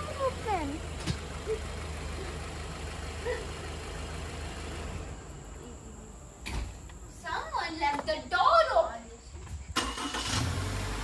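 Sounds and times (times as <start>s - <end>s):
car engine idling: 0.0s - 7.8s.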